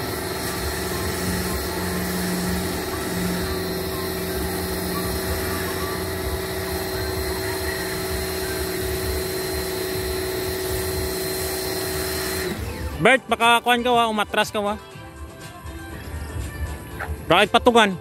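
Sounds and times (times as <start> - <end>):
motor humming with high whine: 0.0 - 13.9.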